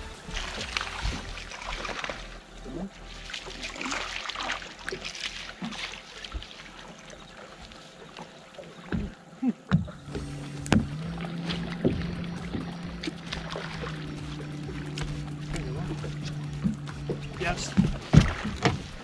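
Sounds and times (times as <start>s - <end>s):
steady low hum: 0.0s - 19.0s
water slapping against hull: 0.1s - 2.4s, 3.1s - 19.0s.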